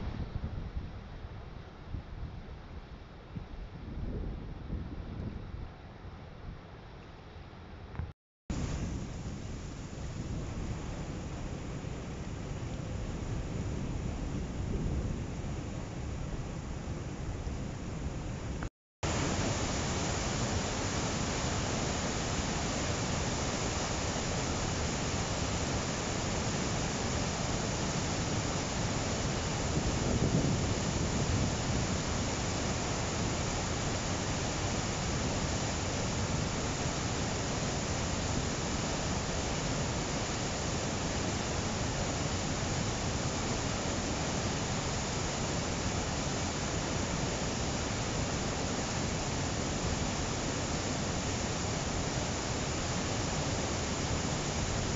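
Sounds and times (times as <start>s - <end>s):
whitewater rushing over rocks: 19.0s - 54.9s.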